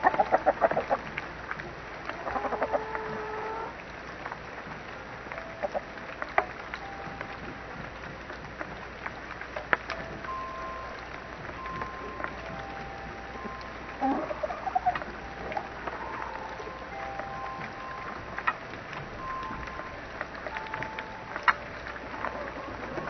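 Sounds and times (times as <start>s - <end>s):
chicken clucking: 0.0s - 1.1s, 2.2s - 3.7s, 14.0s - 15.2s.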